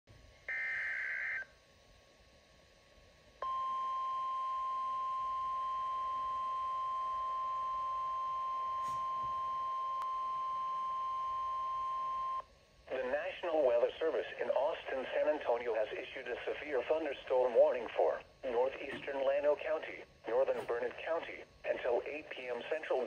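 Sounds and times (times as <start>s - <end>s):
steady alarm tone: 0.5s - 1.6s, 3.4s - 12.4s.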